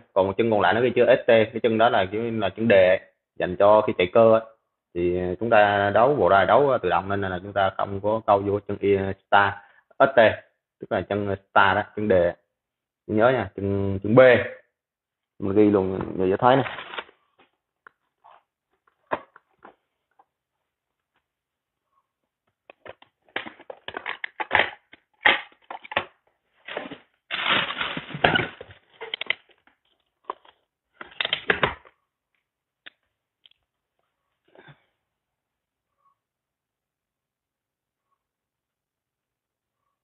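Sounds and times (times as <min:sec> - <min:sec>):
rummaging through plastic drawers: 0:26.6 - 0:29.4.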